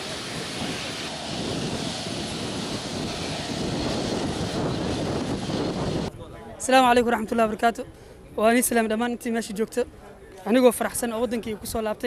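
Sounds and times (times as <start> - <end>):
aircraft engine running: 0.0 - 6.1.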